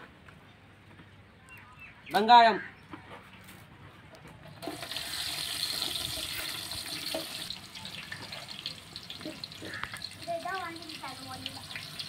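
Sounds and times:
onions sizzling in hot oil: 4.7s - 12.0s.

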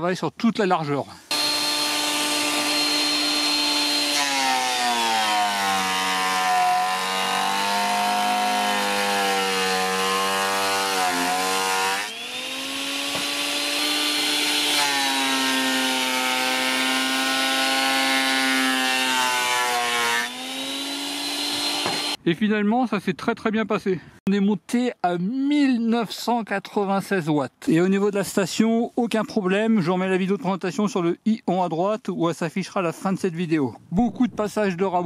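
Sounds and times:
planer motor whining: 1.3s - 4.9s, 9.5s - 18.3s, 20.3s - 22.2s.

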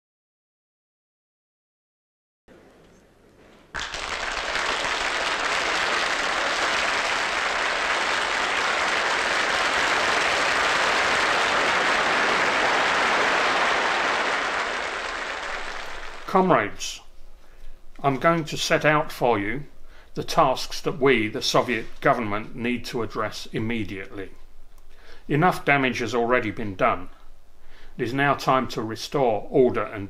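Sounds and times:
large audience applauding: 3.7s - 16.6s.

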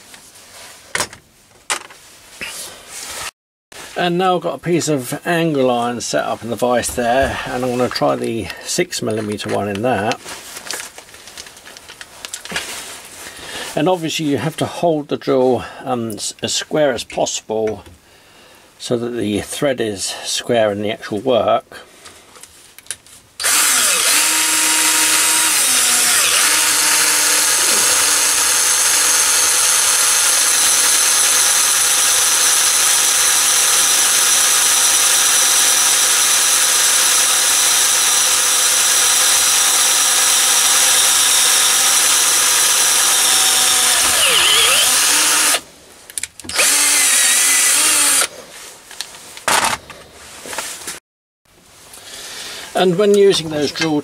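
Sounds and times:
cordless drill cutting steel: 6.8s - 8.0s, 23.4s - 45.6s, 46.5s - 48.3s.

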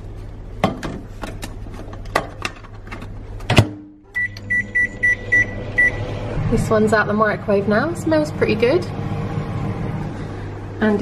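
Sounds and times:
microwave oven hum: 0.0s - 11.0s
short electronic beeps: 4.2s - 6.0s.

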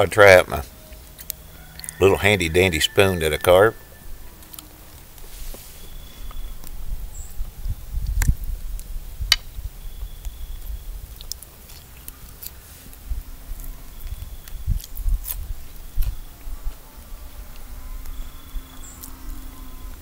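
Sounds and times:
man chewing: 4.1s - 5.3s, 11.0s - 17.6s.

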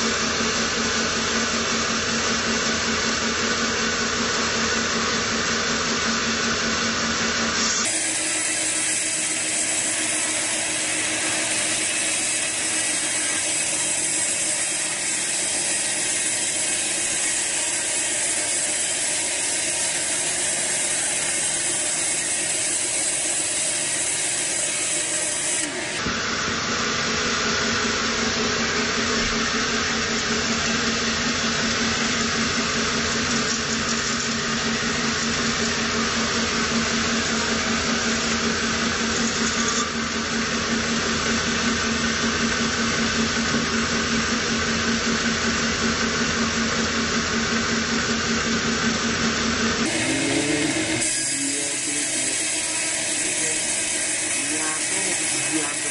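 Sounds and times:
sawmill machine hum: 0.0s - 55.9s
saw blade rasping through log: 7.6s - 26.0s, 49.8s - 55.9s.

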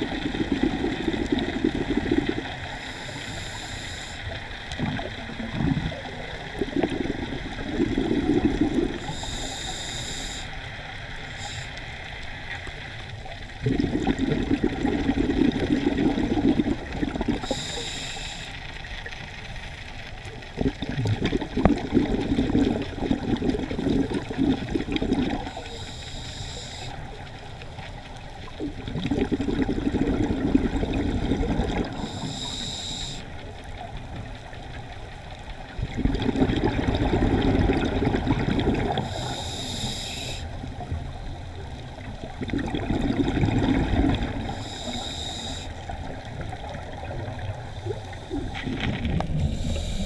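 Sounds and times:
bubbling underwater exhalations: 0.0s - 2.8s, 4.7s - 9.2s, 13.5s - 17.7s, 20.4s - 25.6s, 28.4s - 32.3s, 35.8s - 39.4s, 40.7s - 45.0s, 45.8s - 50.0s
hissing regulator inhalations: 2.2s - 4.5s, 8.9s - 12.0s, 17.3s - 18.8s, 25.4s - 27.1s, 31.2s - 33.4s, 39.0s - 40.6s, 44.4s - 45.9s, 47.6s - 50.0s.

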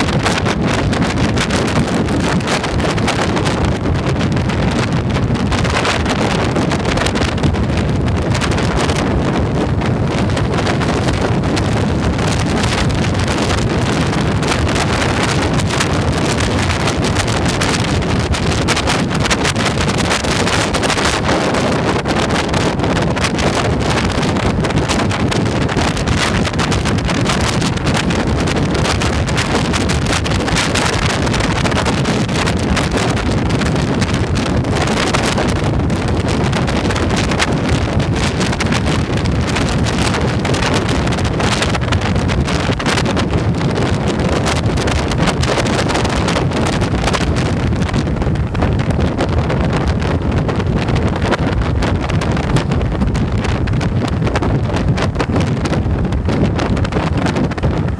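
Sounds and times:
road noise: 0.0s - 57.9s
wind buffeting microphone: 0.0s - 57.9s.

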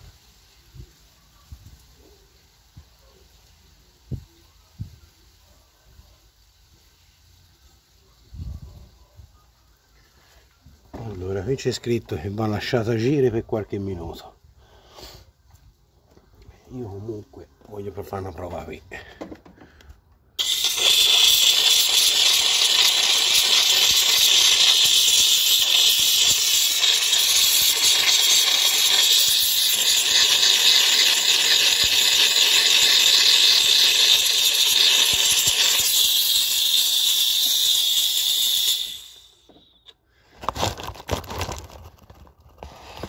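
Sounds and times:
steam cleaner hissing: 0.0s - 1.1s, 20.4s - 39.8s.

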